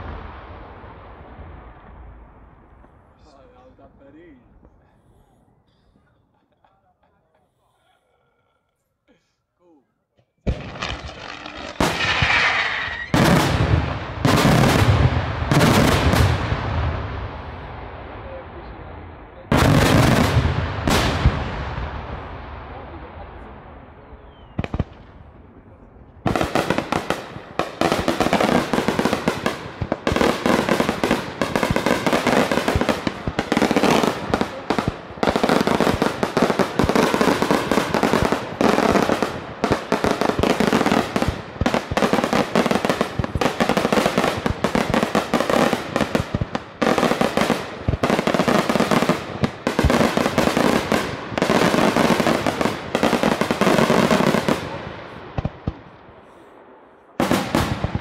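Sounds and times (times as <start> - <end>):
rapid crackle of firecrackers: 0.0 - 4.9, 10.4 - 18.4, 19.4 - 58.0
sharp firework bang: 10.5 - 17.0.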